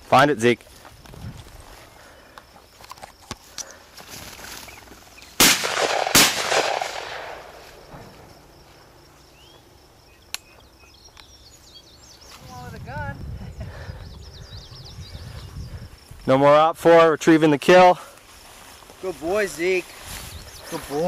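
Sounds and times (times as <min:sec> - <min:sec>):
shotgun shots with echo: 0:05.4 - 0:07.6.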